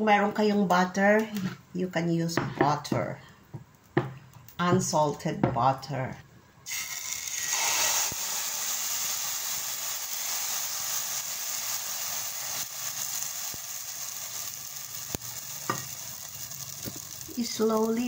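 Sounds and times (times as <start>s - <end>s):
batter sizzling in a hot pan: 6.7s - 18.0s.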